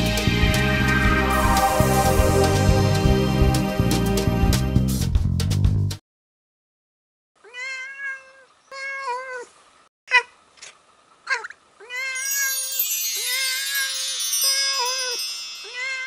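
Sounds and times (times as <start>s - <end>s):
cat meowing: 7.4s - 9.5s, 11.3s - 12.5s.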